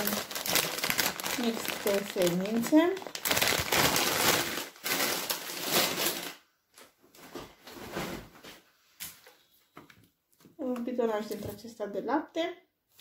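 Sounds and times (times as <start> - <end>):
plastic snack bags crinkling: 0.0 - 6.9.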